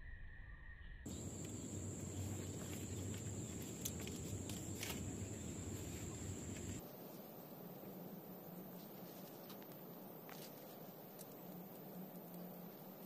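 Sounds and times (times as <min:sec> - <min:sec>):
high-pitched insect trill: 0:00.2 - 0:06.8.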